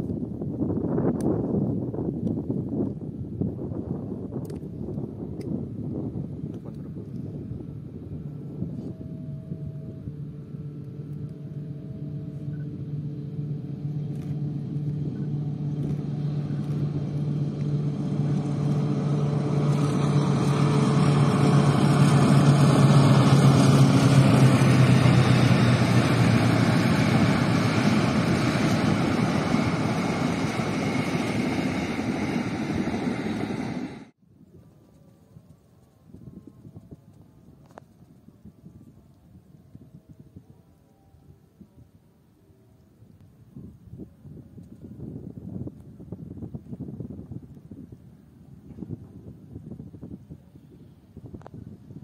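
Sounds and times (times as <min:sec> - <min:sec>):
diesel locomotive engine drone: 0:00.0 - 0:52.0.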